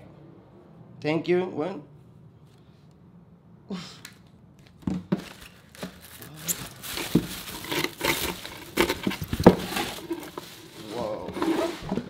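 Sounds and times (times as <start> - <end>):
packing paper rustling and crinkling: 5.1 - 12.0.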